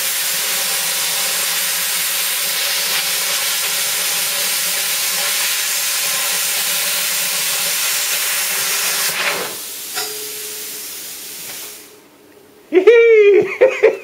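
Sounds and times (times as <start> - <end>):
plasma cutter arc hissing: 0.0 - 12.0
quiet air hiss: 9.3 - 14.0
faint hum: 10.0 - 14.0.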